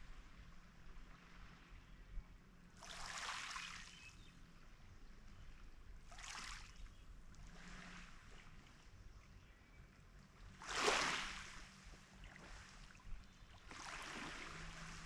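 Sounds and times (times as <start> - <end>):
small waves lapping on pebbles: 2.8 - 4.0, 6.1 - 6.7, 10.6 - 12.9, 13.6 - 15.0.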